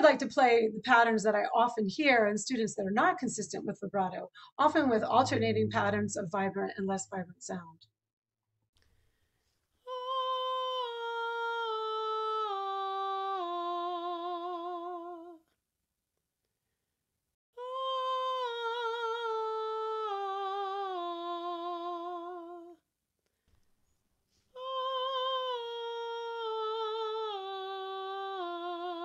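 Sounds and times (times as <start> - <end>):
woman singing descending scales: 9.9 - 15.4, 24.6 - 29.0.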